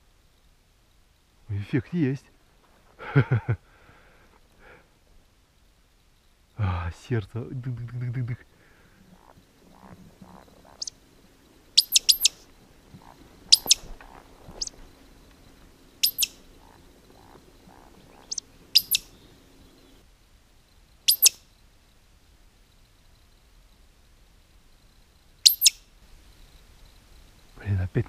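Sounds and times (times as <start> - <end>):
sharp high whistles: 11.8 - 12.4, 13.5 - 13.8, 16.0 - 16.4, 21.1 - 21.4, 25.5 - 25.8.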